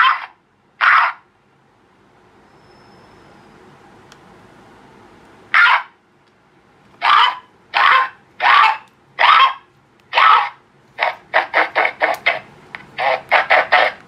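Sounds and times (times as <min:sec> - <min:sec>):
duck quacks through loudspeaker: 0:10.2 - 0:14.0.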